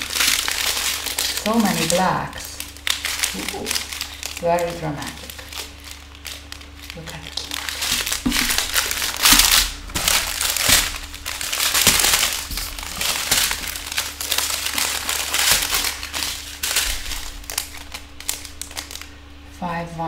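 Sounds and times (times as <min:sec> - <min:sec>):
plastic bags crinkling: 0:00.0 - 0:19.4.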